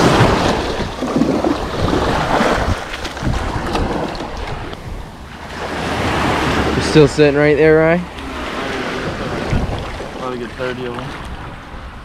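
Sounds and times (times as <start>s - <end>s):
water splashing in bucket: 0.0s - 4.7s
small waves washing in: 0.0s - 12.0s
wind buffeting microphone: 0.0s - 12.0s.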